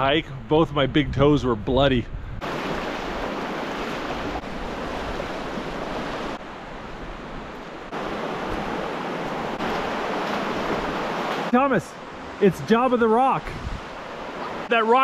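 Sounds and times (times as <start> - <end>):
water rushing over rocks: 2.4 - 6.5, 7.5 - 15.0.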